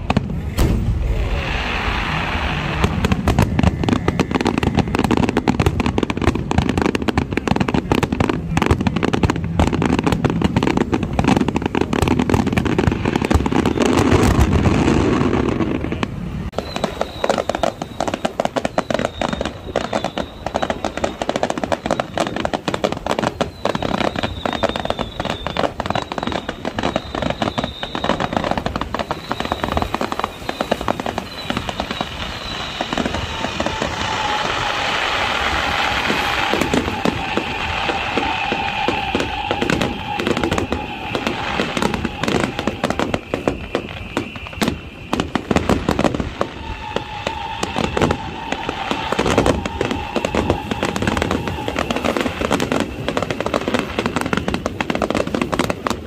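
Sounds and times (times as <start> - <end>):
fireworks crackling and banging: 0.0 - 56.0.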